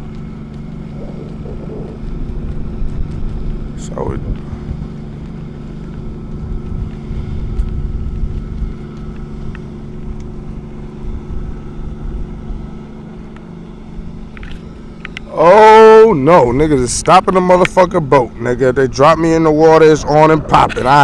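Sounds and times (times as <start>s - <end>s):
wind buffeting microphone: 0.0s - 13.2s, 18.1s - 21.0s
distant motorboat engine drone: 0.0s - 21.0s.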